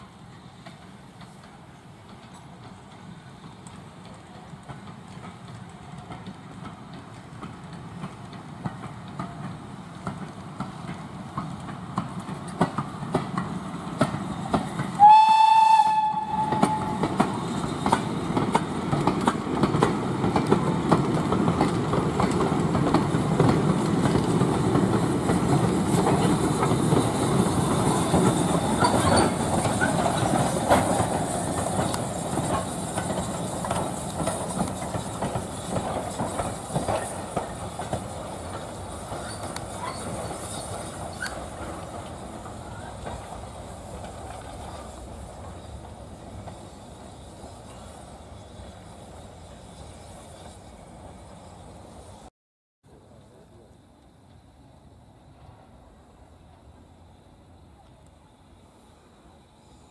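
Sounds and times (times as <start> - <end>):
wheels clicking over rail joints: 0.3 - 51.4
steam locomotive whistle: 15.0 - 17.2.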